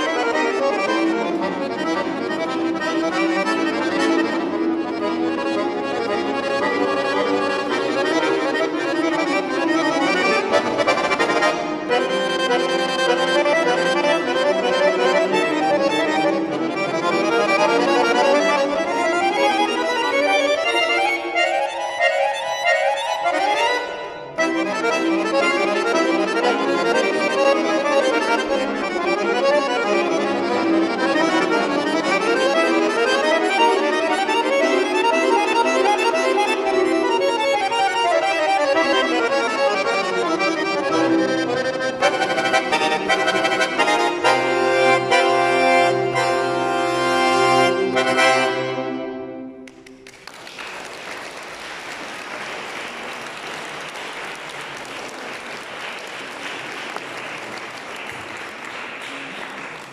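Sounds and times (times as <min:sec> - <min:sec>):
button accordion chords: 0:00.0 - 0:50.0
applause: 0:49.6 - 0:59.9.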